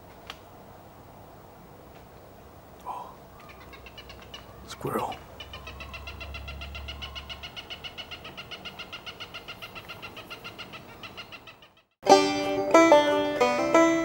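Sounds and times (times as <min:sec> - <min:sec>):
banjo music: 0:12.0 - 0:14.0.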